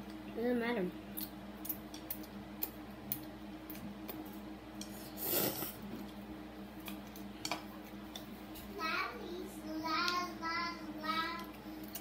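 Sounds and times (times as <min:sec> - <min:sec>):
slurping noodles: 0:05.0 - 0:05.8.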